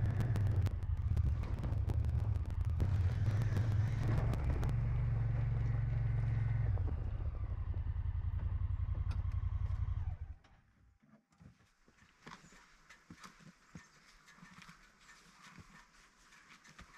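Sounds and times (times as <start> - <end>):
utility vehicle engine running: 0.0 - 10.6.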